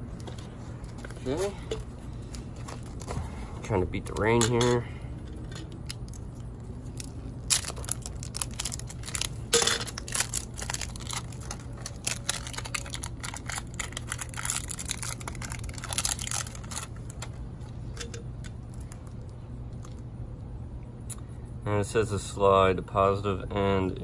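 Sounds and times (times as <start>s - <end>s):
battery handling clicks and rustles: 0.2s - 19.2s.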